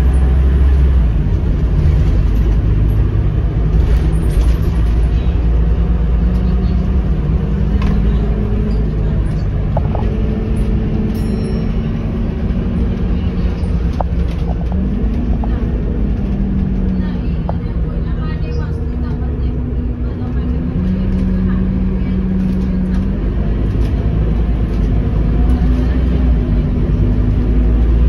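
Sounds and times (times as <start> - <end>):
bus diesel engine: 0.0 - 28.0
road rumble: 0.0 - 28.0.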